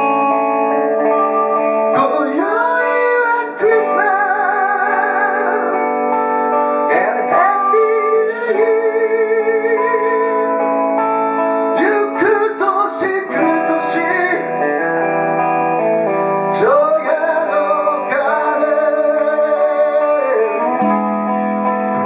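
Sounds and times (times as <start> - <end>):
guitar: 0.0 - 22.0
person singing: 0.0 - 22.0.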